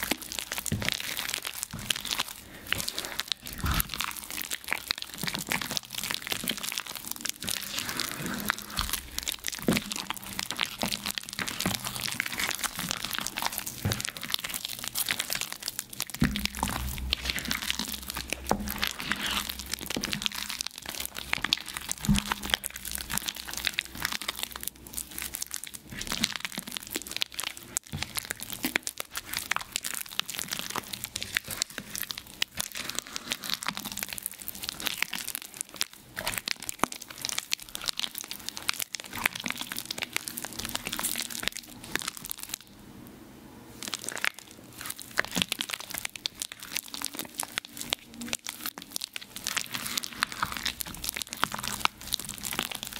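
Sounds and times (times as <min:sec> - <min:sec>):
chalk crackling and crunching: 0:00.0 - 0:42.7, 0:43.8 - 0:52.9.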